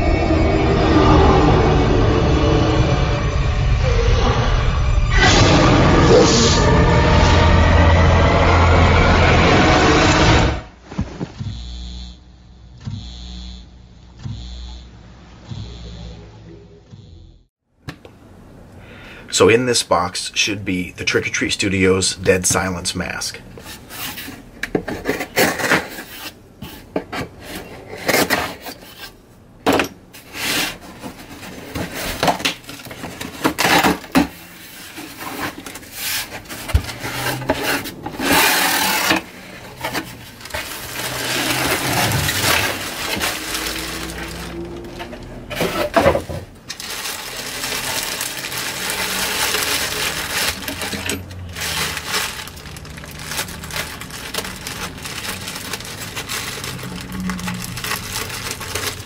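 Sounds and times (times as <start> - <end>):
cardboard box scrapes and knocks: 23.6 - 29.2, 30.2 - 46.9
plastic bag crinkling: 31.3 - 59.0
scissors cutting plastic: 46.7 - 59.0.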